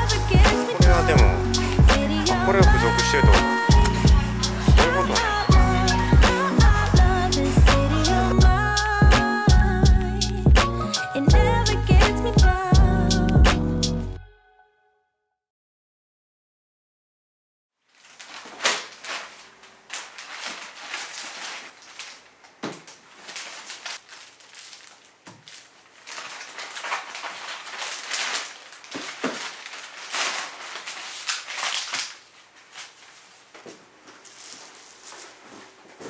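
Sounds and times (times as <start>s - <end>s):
packaging crinkling and rustling: 17.8s - 36.0s.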